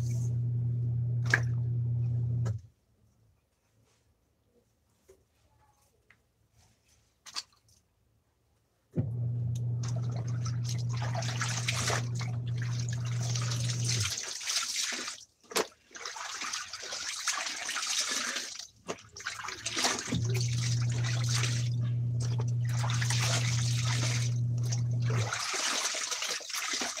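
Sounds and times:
water splashing in basin: 1.2 - 1.6, 9.8 - 27.0.

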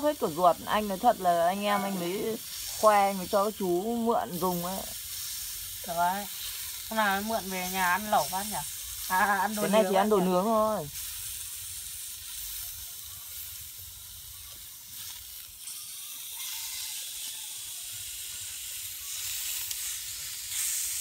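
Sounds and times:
meat sizzling on hot plates: 0.0 - 21.0.

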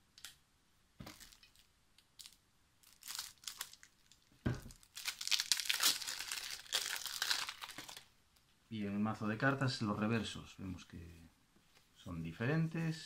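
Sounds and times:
plastic wrap crinkling: 1.0 - 8.1.

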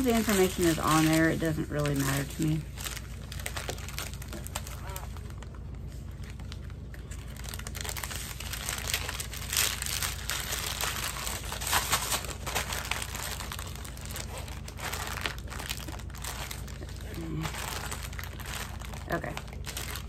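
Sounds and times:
plastic bag crinkling: 0.0 - 20.0.

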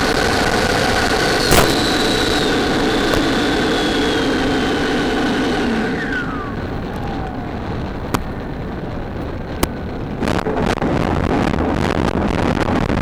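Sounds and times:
model plane motor whining: 0.0 - 10.7
plane rolling across grass: 0.1 - 11.7
sharp clicks: 1.4 - 2.3.

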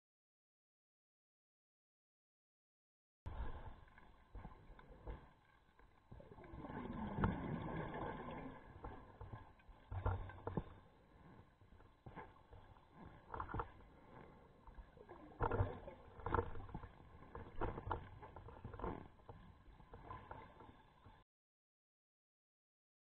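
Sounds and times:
low underwater rumble: 3.3 - 21.2
exhaled bubbles: 6.1 - 9.2.

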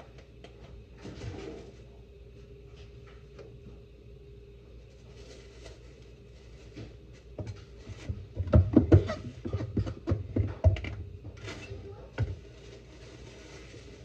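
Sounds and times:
faint steady hum: 0.0 - 14.0
kitchen knocks and thumps: 7.4 - 11.4.

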